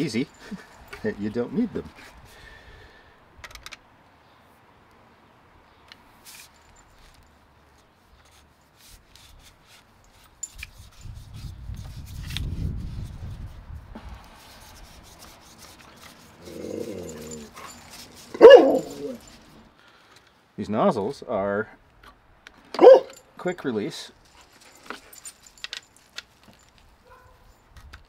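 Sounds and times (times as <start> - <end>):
dog barking: 18.4 - 19.2, 22.8 - 23.1, 27.0 - 27.4.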